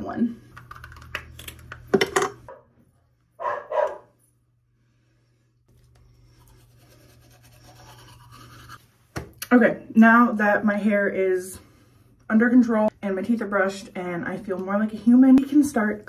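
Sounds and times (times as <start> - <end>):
dog barking: 3.4 - 4.1
toothbrush scrubbing teeth: 5.7 - 8.8.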